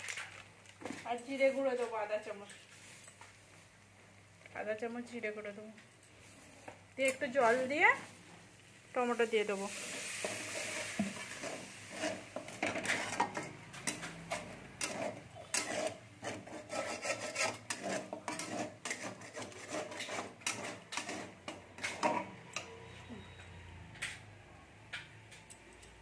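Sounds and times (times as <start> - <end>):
spatula scraping metal pan: 9.7 - 22.7.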